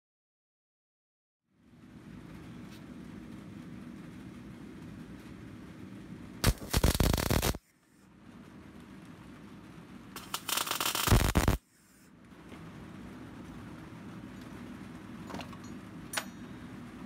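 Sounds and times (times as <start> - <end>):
low steady hum: 1.4 - 17.0
welder arc crackling: 1.7 - 15.2.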